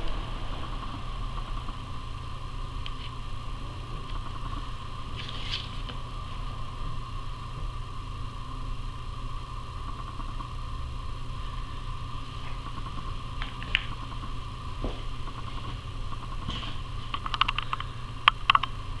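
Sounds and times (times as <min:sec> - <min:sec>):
mechanical hum: 0:00.0 - 0:19.0
small ticks: 0:17.1 - 0:18.8.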